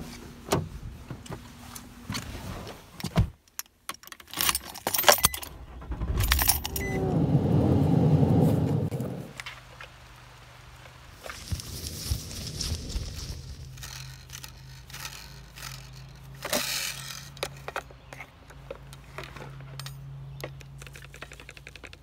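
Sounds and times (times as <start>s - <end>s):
rake scraping through grass: 11.1s - 17.3s.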